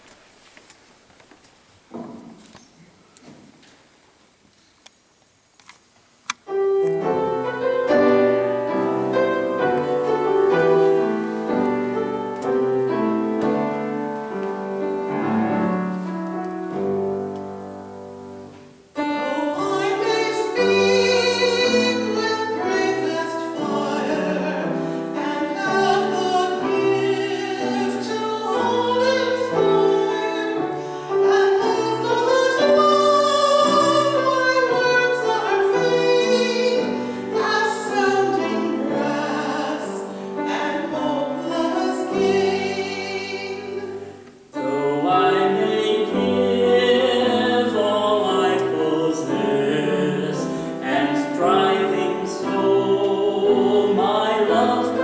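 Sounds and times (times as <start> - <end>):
grand piano: 6.3 - 55.0
voices singing with vibrato: 19.0 - 55.0.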